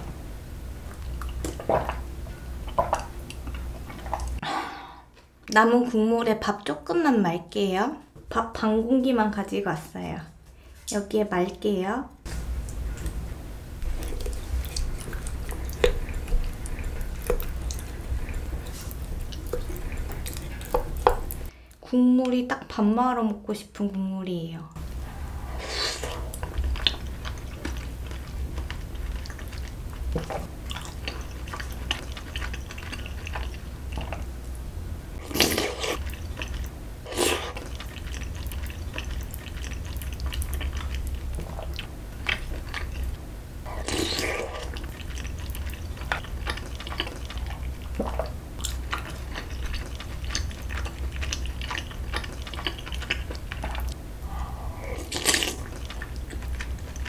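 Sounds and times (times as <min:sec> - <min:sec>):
slurping and chewing food: 0:13.8 - 0:21.5, 0:25.0 - 0:34.5, 0:35.2 - 0:57.0.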